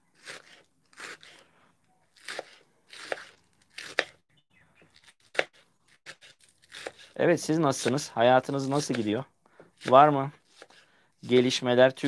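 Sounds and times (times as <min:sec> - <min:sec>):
knife chopping on plastic board: 0:02.2 - 0:04.2, 0:05.3 - 0:07.1.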